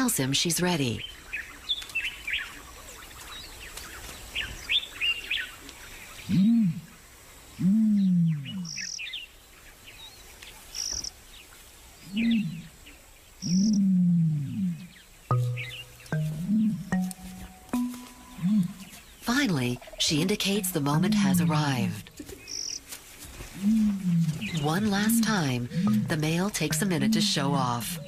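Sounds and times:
small birds chirping: 0.0 - 6.4, 7.4 - 13.9, 14.5 - 28.0
low rising and falling bird calls: 12.0 - 22.8.

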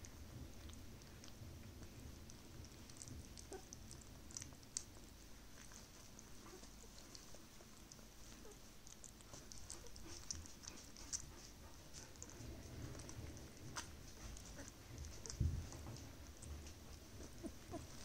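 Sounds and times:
puppy licking lips: 0.1 - 18.0.

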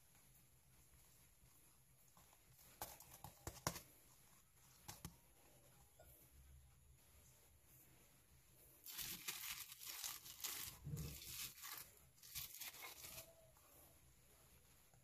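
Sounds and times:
plastic wrap crinkling: 8.8 - 13.6.

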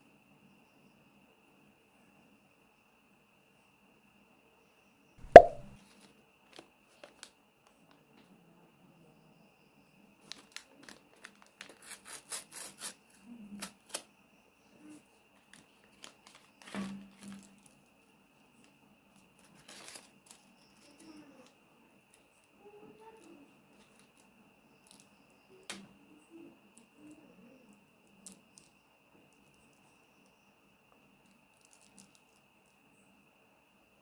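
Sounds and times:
sharp knock: 5.2 - 5.7
soft thud: 5.3 - 5.7.

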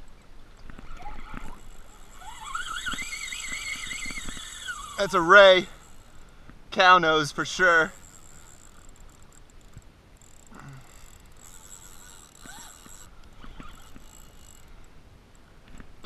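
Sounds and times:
soft ticks: 7.8 - 15.9.

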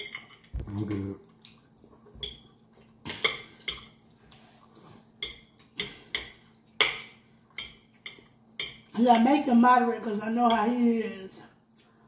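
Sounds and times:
forks clinking on glass plates: 0.0 - 0.6.

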